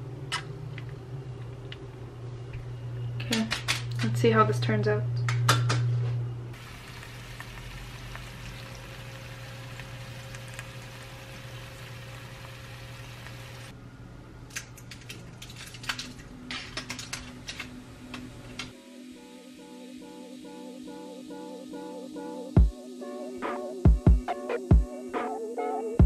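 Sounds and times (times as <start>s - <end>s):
low hum: 6.0s - 14.4s
food sizzling hiss: 6.6s - 13.7s.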